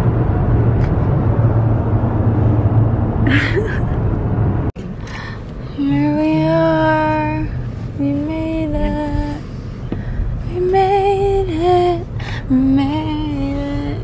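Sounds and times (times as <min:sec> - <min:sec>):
car interior rumble: 0:00.0 - 0:14.0.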